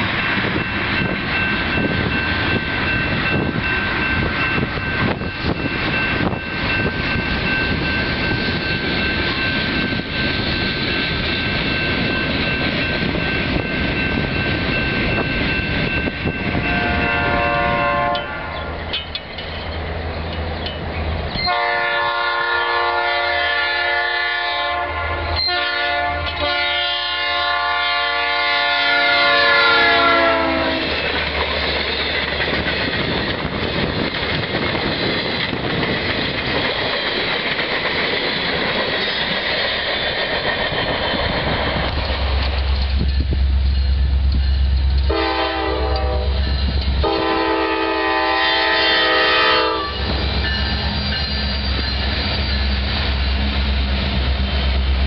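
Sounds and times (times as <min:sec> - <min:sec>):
train rumbling over rails: 0:00.0 - 0:55.0
locomotive air horn blast: 0:16.5 - 0:18.6, 0:21.4 - 0:30.9, 0:45.1 - 0:50.1.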